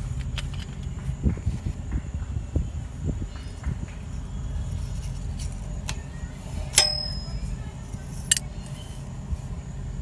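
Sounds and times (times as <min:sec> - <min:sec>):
metallic clinks: 0:06.7 - 0:07.7.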